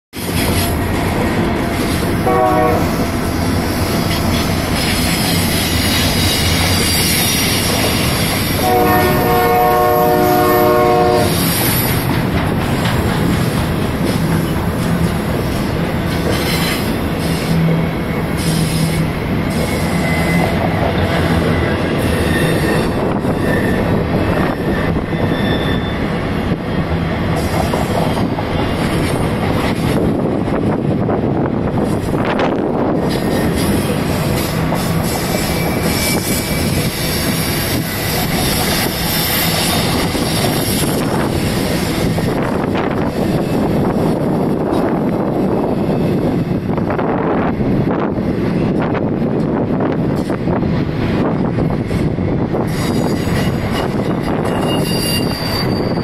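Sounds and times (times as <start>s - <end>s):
freight train rumbling past: 0.1s - 56.0s
locomotive horn blasts: 2.2s - 3.1s, 8.6s - 11.5s
high wheel squeals: 4.8s - 8.6s, 18.3s - 20.6s, 22.0s - 26.2s, 33.2s - 42.0s, 52.7s - 56.0s.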